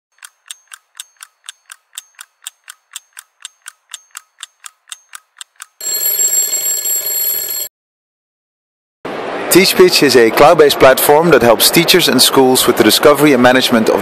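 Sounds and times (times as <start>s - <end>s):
clock ticking: 0.1s - 6.4s
alarm clock bell ringing: 5.8s - 7.7s.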